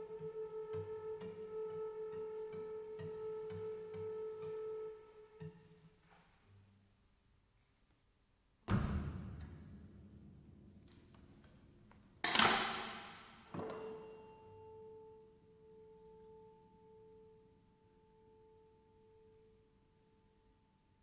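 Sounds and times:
chamber ensemble music: 0:00.0 - 0:06.1.

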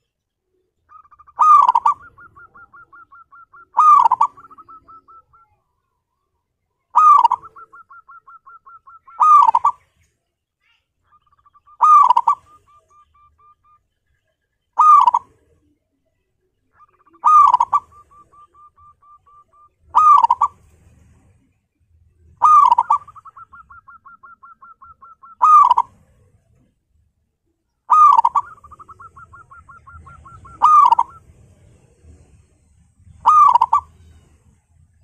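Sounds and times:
dove cooing: 0:00.8 - 0:05.6, 0:06.9 - 0:09.9, 0:11.1 - 0:13.8, 0:14.8 - 0:15.8, 0:16.7 - 0:21.3, 0:22.2 - 0:26.7, 0:27.9 - 0:34.4.

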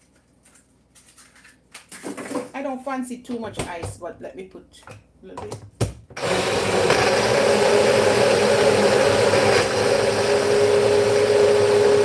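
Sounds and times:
blender motor grinding: 0:06.2 - 0:12.0.

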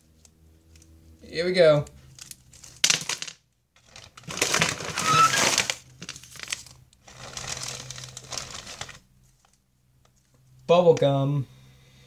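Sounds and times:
plastic bag crinkling: 0:03.8 - 0:09.1.

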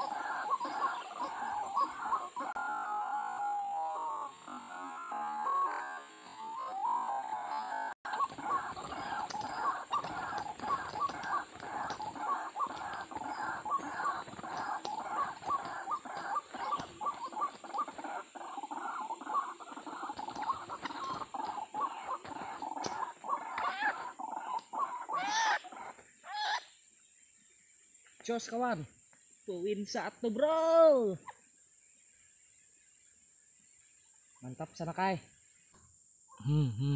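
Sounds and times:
waterhen croaking calls: 0:00.0 - 0:26.7.

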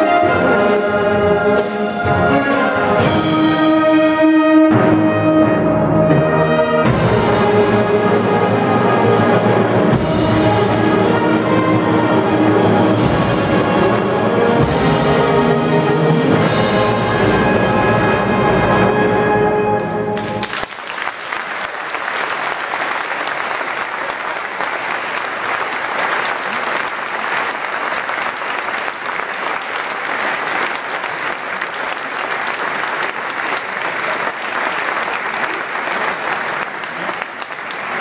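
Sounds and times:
audience applause: 0:20.2 - 0:38.0.

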